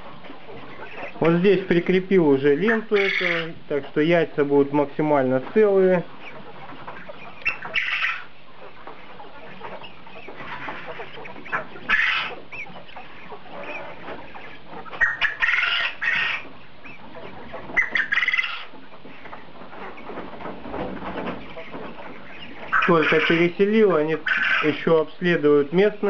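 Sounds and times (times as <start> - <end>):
quails chirping: 0.0 - 26.0
quails shrill cries: 2.6 - 3.6, 6.1 - 20.1, 21.3 - 23.6, 24.2 - 24.9.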